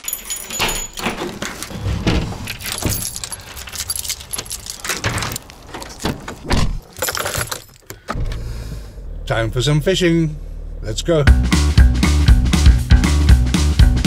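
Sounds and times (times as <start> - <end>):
keys clicking in door lock: 0.0 - 8.0
keys jangling: 0.0 - 8.0.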